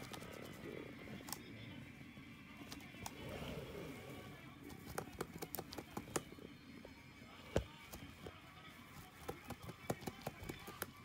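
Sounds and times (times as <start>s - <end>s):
rabbit nibbling straw: 0.0s - 11.0s.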